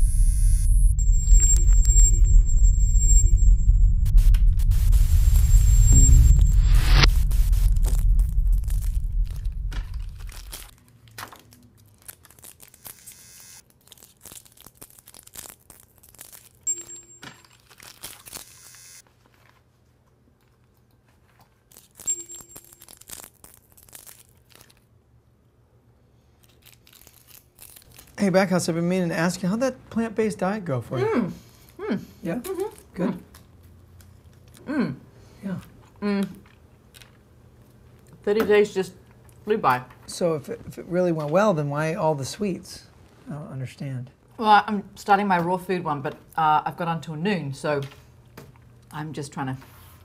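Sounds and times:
faint steady tone: 0.0 - 7.1
low electronic rumbling drone: 0.0 - 10.7
wrappers crinkling and tearing: 7.7 - 16.7, 17.4 - 19.8, 21.1 - 24.9, 26.4 - 28.4.

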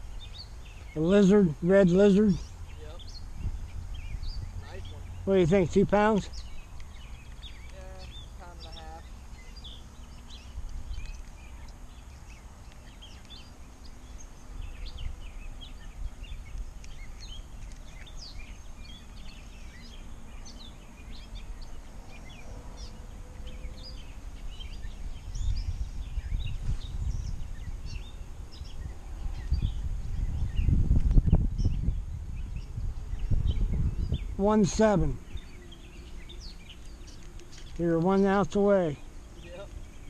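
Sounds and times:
small birds chirping: 0.0 - 40.0
low rumble on microphone: 21.1 - 37.8.

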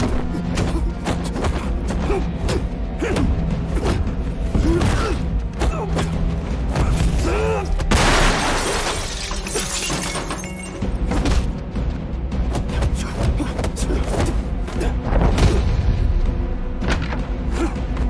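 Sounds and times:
background music: 0.0 - 18.0
glass breaking: 7.9 - 10.9.

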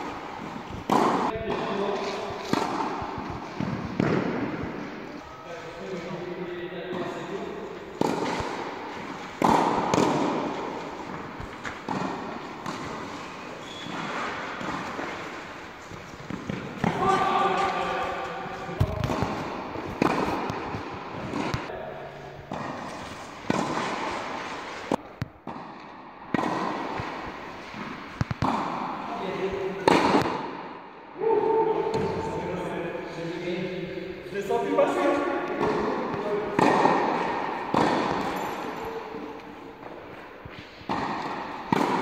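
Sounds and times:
tennis ball bouncing on court: 0.0 - 5.0, 7.9 - 17.0, 18.8 - 21.7, 22.5 - 29.1, 29.8 - 30.7, 35.5 - 38.8, 39.4 - 42.0
tennis balls struck by rackets: 0.0 - 5.1, 7.8 - 21.8, 22.4 - 30.9, 35.3 - 42.0.

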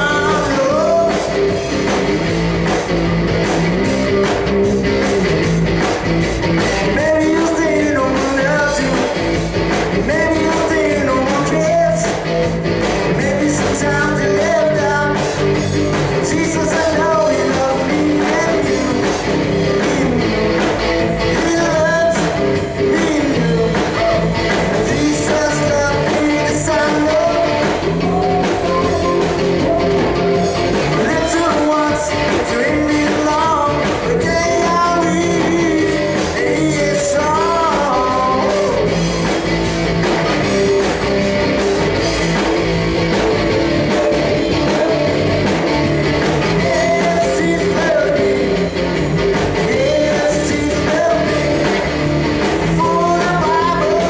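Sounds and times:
man singing into a microphone: 0.0 - 1.5, 6.8 - 9.2, 9.9 - 12.3, 13.0 - 39.0, 46.3 - 48.8, 49.5 - 54.0
drum kit with cymbals: 0.0 - 54.0
electric guitar: 0.0 - 54.0.

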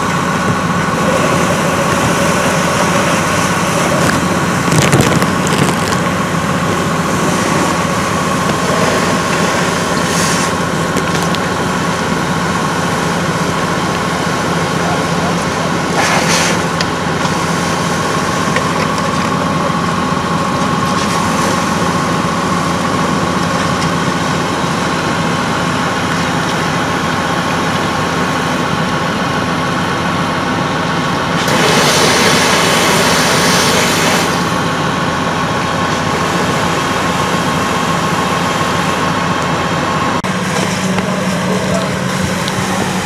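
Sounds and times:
fire engine pump engine running: 0.0 - 43.0
steady whine: 0.0 - 43.0.

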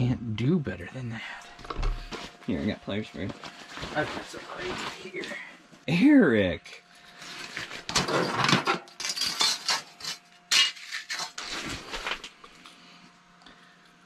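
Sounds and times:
faint steady hum: 0.0 - 14.0.

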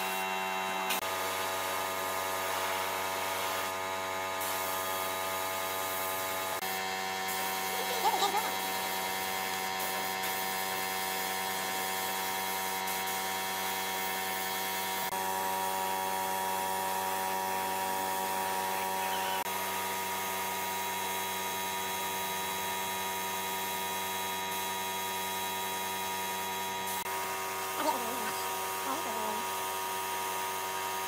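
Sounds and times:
air compressor humming: 0.0 - 31.0
spray gun hissing: 7.2 - 15.0.

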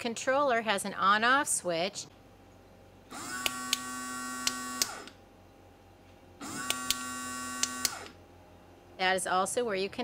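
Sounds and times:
electric pump motor humming: 3.1 - 5.2, 6.4 - 8.2.

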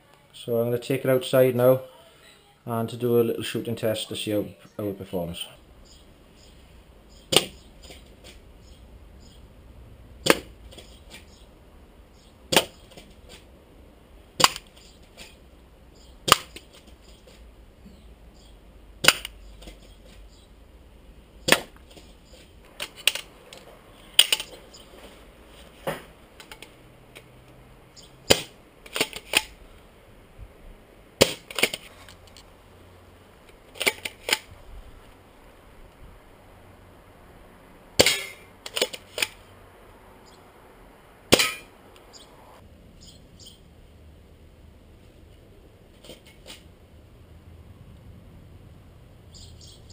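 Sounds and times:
airsoft shotgun cracks: 10.2 - 10.5, 19.0 - 19.4, 28.3 - 29.6, 31.2 - 31.8, 38.0 - 39.4, 41.3 - 41.7.

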